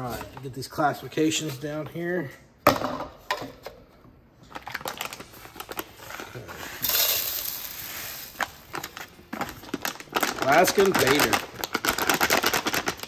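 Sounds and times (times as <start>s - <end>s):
gravel and sand pouring: 6.8s - 8.6s, 10.4s - 11.3s.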